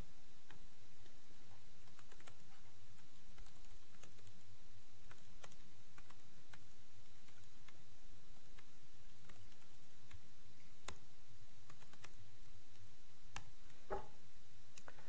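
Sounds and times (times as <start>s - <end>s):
steady low hum: 0.0s - 15.0s
computer keyboard typing: 1.8s - 4.4s, 5.1s - 6.6s, 7.2s - 7.8s, 8.6s - 10.2s, 11.7s - 12.2s.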